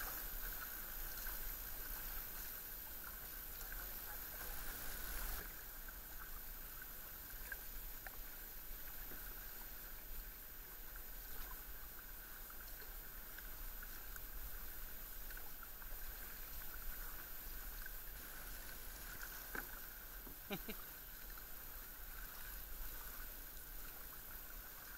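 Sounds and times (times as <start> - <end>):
steady hiss: 0.0 - 5.5, 16.2 - 20.8
kayak paddles dipping in water: 0.0 - 24.9.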